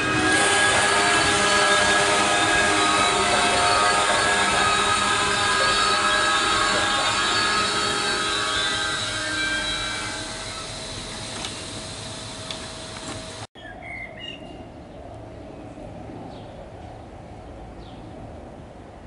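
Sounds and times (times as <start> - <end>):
brakes squealing: 0.0 - 13.5
station ambience: 0.0 - 13.5
train rolling to a stop: 0.0 - 13.5.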